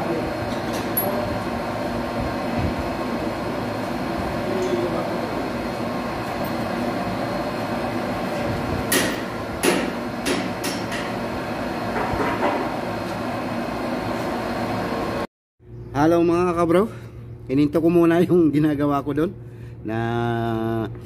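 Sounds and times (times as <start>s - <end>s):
sharp metallic knocks and clanks: 8.9s - 11.2s.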